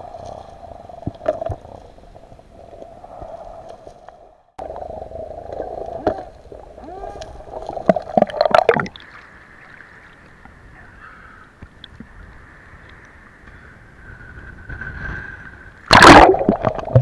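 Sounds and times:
underwater bubbling: 0.0 - 10.7, 15.7 - 17.0
water lapping and sloshing: 0.0 - 13.4
underwater hum: 0.0 - 17.0
water splashing: 4.6 - 10.6, 15.9 - 17.0.

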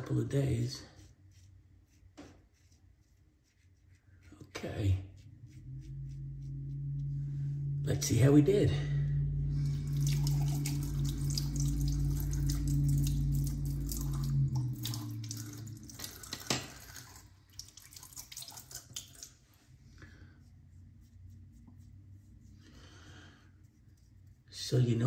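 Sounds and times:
water dripping: 9.5 - 19.4
water splashing on face: 9.7 - 19.4
sink tap running: 9.9 - 19.3.

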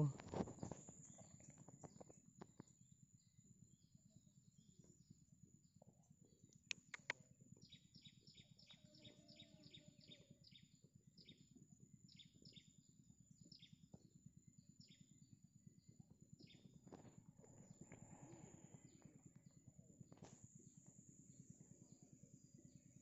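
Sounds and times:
sharp clicks: 6.6 - 7.2.

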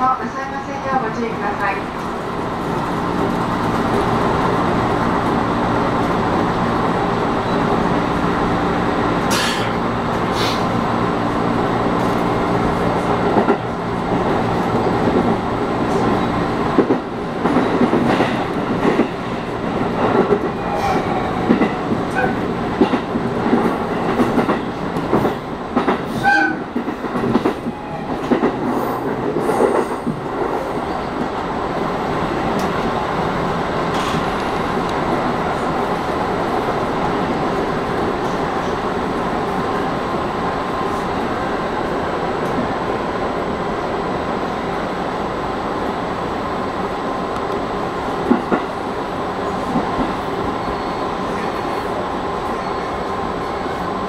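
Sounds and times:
train wheel squeals: 50.5 - 53.1.

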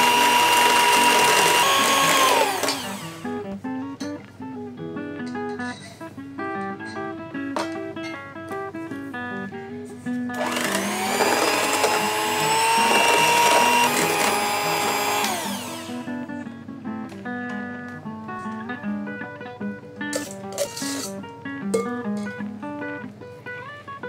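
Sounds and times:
electric hand mixer whirring: 0.0 - 3.4, 10.3 - 16.2
acoustic guitar music: 0.0 - 10.8, 11.5 - 24.0.

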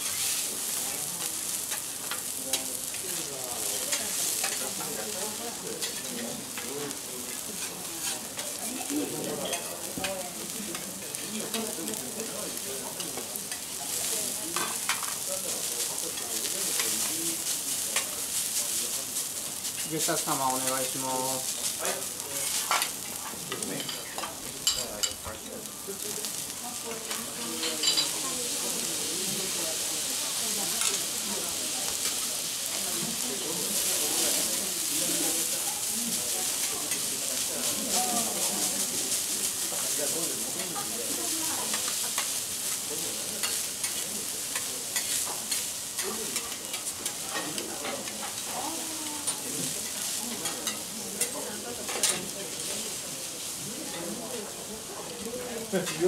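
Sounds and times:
rice sizzling on a griddle: 0.0 - 56.0
metal spatula scraping and clinking: 7.6 - 9.8, 27.6 - 28.1.

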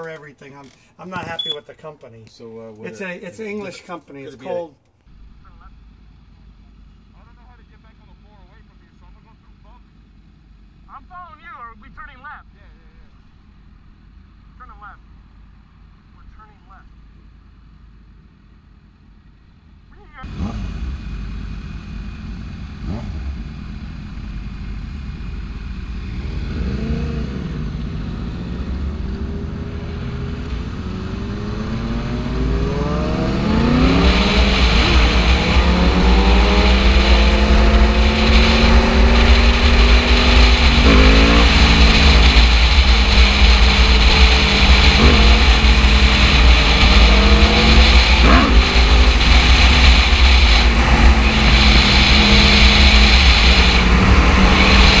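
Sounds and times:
motorcycle engine accelerating: 20.2 - 55.0.

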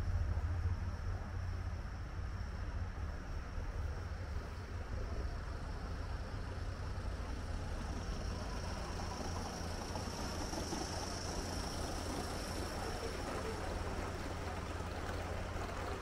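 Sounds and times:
model steam train hissing: 3.8 - 16.0.

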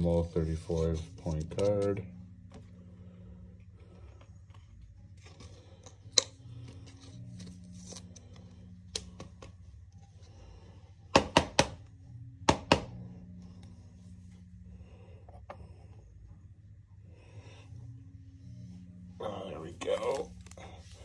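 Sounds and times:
low steady hum: 0.0 - 21.0
cards clicking on hard surface: 5.3 - 9.6.

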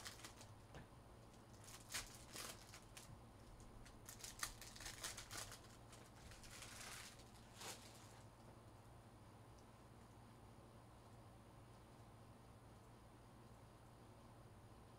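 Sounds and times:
foil wrappers crinkling: 0.0 - 0.6, 1.3 - 8.2.

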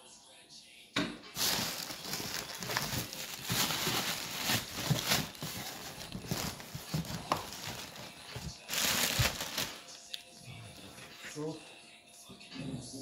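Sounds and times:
plastic packaging rustling: 1.4 - 10.0.

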